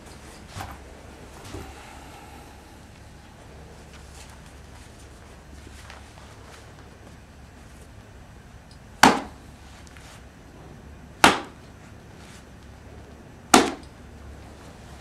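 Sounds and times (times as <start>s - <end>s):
gloves slapped against hand: 9.0s - 9.3s, 11.2s - 11.6s, 13.6s - 13.9s.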